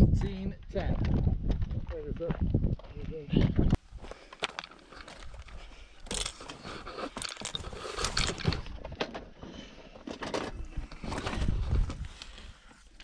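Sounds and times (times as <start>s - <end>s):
footsteps on gravel: 0.8s - 7.9s
fishing tackle being handled: 4.2s - 8.9s.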